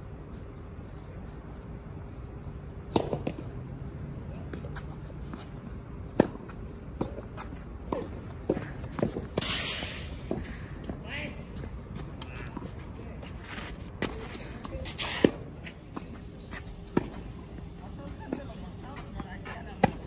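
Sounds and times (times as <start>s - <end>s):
footsteps on court: 4.5s - 9.4s, 10.3s - 20.0s
racket striking tennis ball: 6.1s - 10.4s.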